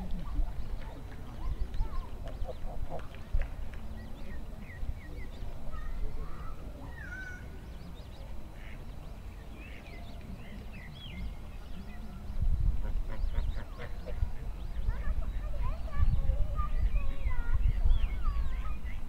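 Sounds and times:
birds chirping and whistling: 9.3 - 19.0.

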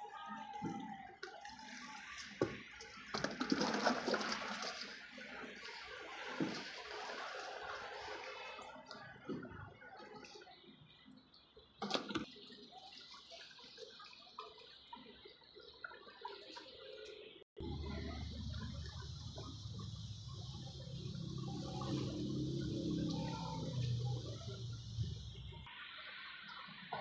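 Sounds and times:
liquid plaster pouring and splashing: 1.3 - 8.6.

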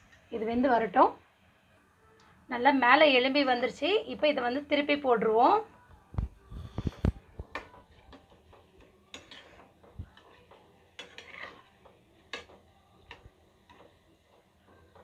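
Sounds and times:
faint frying sizzle: 0.0 - 15.0
metal spatula scraping a pan: 6.6 - 15.0.

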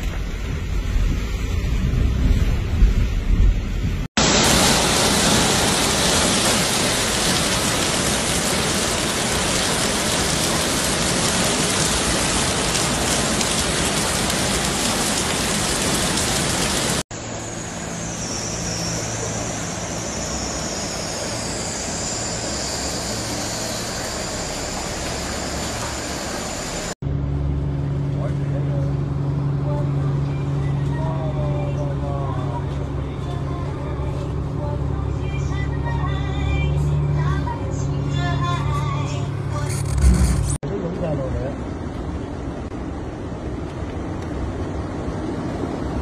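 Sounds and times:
rushing floodwater: 4.2 - 17.0, 22.2 - 27.0
heavy rain: 4.2 - 17.1, 18.7 - 27.0.

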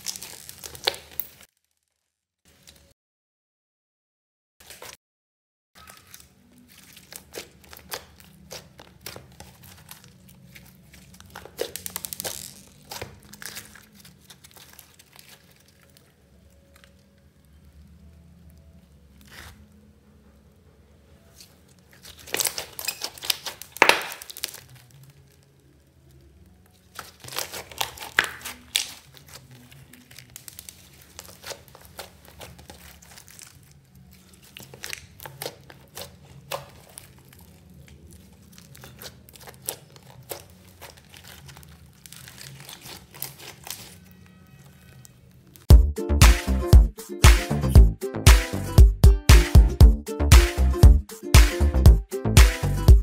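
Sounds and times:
slime squishing: 0.0 - 1.9, 5.8 - 19.9, 21.2 - 45.7.

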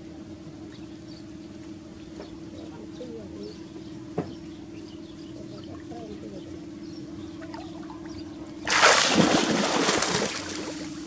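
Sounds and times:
steady low hum: 0.0 - 11.0
loud water splash: 8.6 - 10.9.

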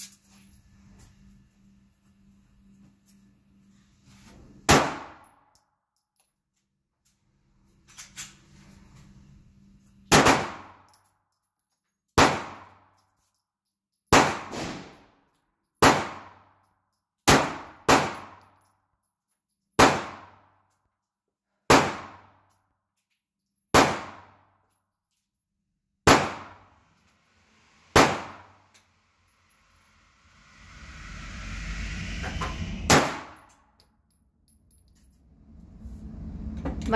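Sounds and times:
pistol shots in indoor range: 4.6 - 6.0, 10.0 - 11.4, 12.0 - 13.2, 14.0 - 18.8, 19.6 - 25.1, 26.0 - 28.8.

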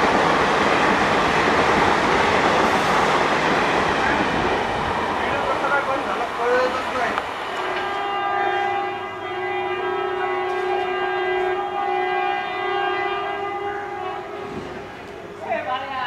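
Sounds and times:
locomotive horn blast: 7.5 - 15.3.

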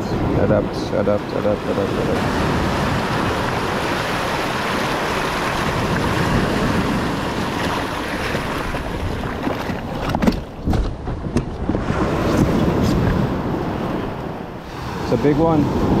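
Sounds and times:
surf washing around kayak hull: 0.0 - 16.0
wind buffeting microphone: 0.0 - 16.0
knocks of kayak and paddle: 7.3 - 13.2.

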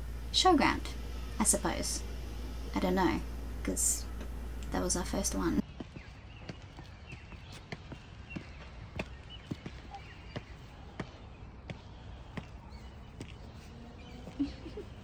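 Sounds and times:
footsteps on concrete: 5.6 - 14.6.

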